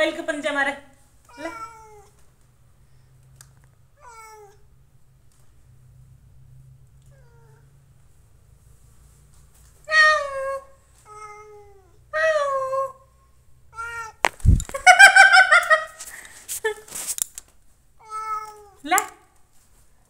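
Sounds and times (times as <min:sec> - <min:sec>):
cat meowing: 0:01.3 - 0:02.2, 0:04.0 - 0:04.6, 0:07.1 - 0:07.7, 0:09.9 - 0:13.0, 0:13.7 - 0:14.3, 0:18.0 - 0:18.8.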